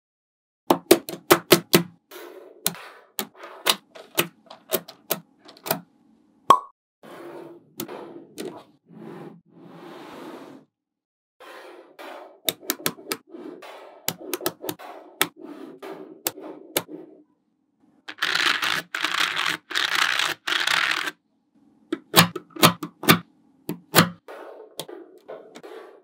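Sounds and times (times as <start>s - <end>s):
plastic card scraping along balls: 1.1s - 5.6s, 7.0s - 9.4s, 11.4s - 17.2s, 18.1s - 21.2s, 23.8s - 26.0s.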